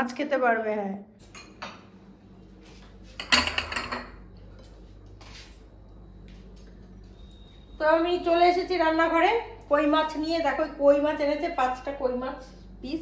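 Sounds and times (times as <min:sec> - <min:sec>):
glass bowls clinking: 0:03.2 - 0:04.2.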